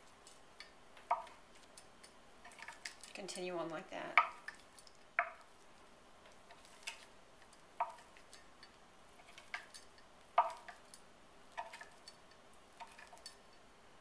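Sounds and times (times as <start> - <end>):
knife tapping on wooden board: 10.4 - 10.8.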